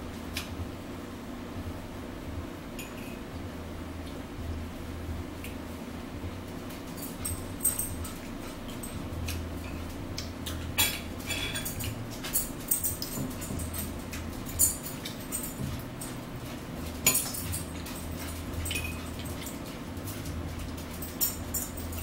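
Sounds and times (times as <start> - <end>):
steady low hum: 0.0 - 22.0
forks clinking on plates: 6.9 - 22.0.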